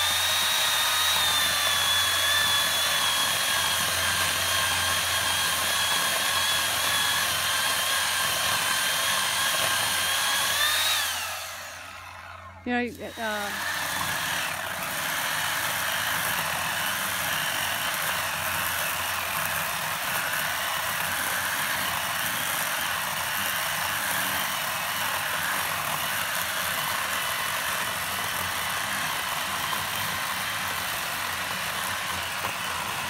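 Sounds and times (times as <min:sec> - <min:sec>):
electric chainsaw cutting wood: 0:00.0 - 0:33.0.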